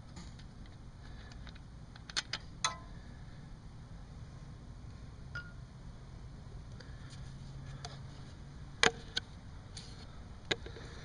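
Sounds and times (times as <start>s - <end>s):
light clicks and taps of parts: 0.2s - 2.9s.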